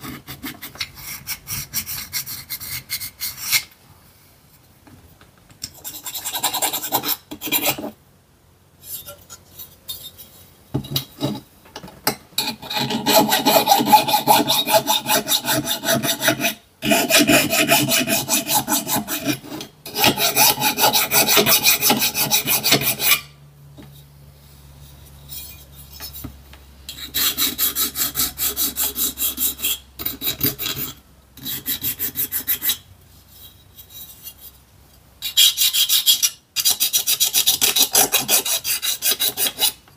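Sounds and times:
needle file rasping on metal: 0:00.0 - 0:03.7, 0:05.7 - 0:08.0, 0:12.4 - 0:23.3, 0:26.9 - 0:34.5, 0:35.2 - 0:39.8.

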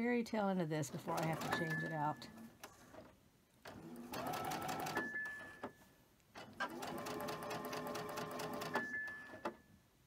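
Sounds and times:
sewing machine stitching: 0:00.9 - 0:03.1, 0:03.7 - 0:05.7, 0:06.4 - 0:09.6.

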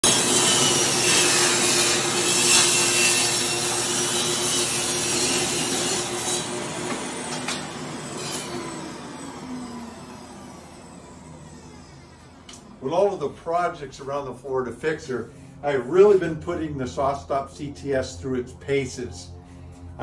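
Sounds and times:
saw blade cutting wood: 0:00.0 - 0:09.1
table saw motor whine: 0:00.0 - 0:20.0.

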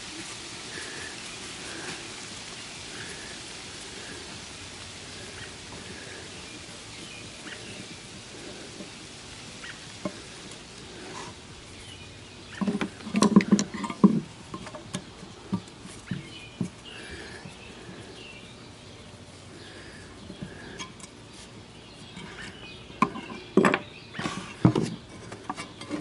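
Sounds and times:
steady background hiss: 0:00.0 - 0:26.0.

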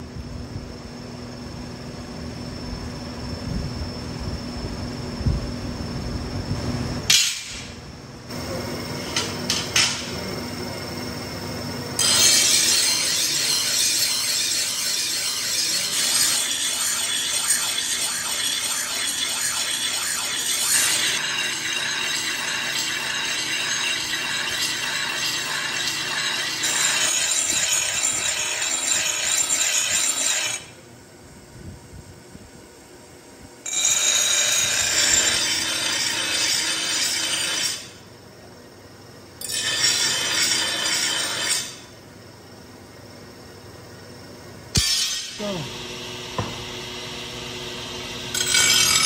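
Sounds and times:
grinding wheel grinding steel: 0:12.0 - 0:30.7, 0:33.7 - 0:38.0, 0:39.4 - 0:41.8, 0:44.8 - 0:49.0.

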